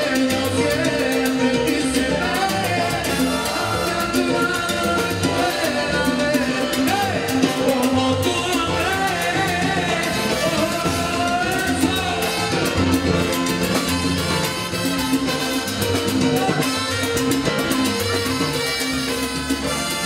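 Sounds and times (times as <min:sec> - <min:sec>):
male lead vocal: 0:00.0 - 0:13.4, 0:16.1 - 0:17.1
live salsa band playing: 0:00.0 - 0:20.0.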